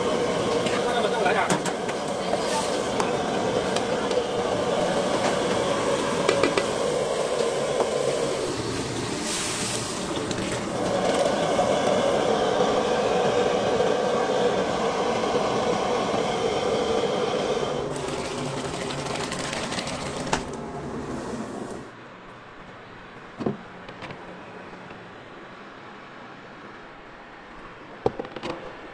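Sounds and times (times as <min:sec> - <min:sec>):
short hiss: 0:08.8 - 0:10.1.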